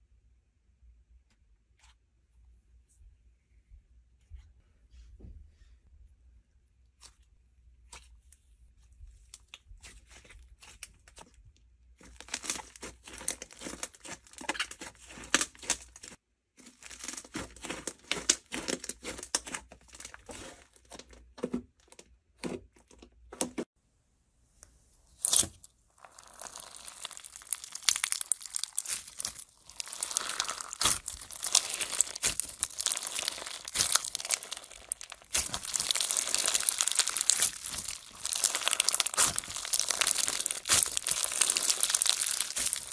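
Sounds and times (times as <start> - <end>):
crunchy slime crackling: 25.1 - 42.9.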